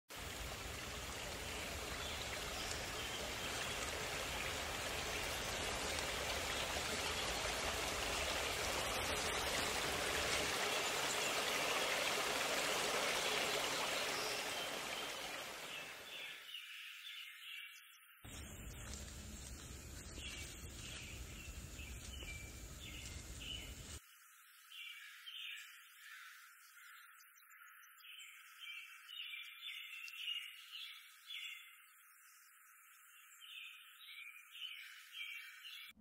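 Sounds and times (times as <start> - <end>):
stream water rushing: 0.1 - 16.2.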